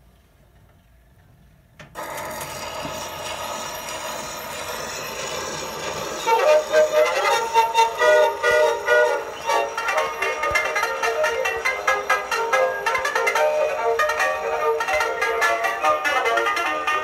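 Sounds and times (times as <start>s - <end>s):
record surface hiss: 0.0s - 2.0s
phonograph music: 5.0s - 17.0s.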